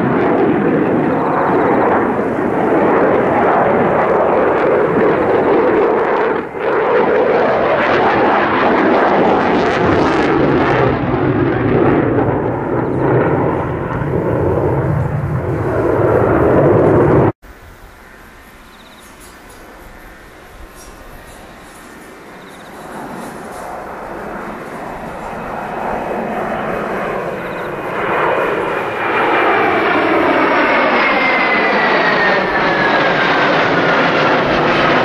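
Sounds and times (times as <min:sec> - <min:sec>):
jet engines roaring: 0:00.0 - 0:35.0.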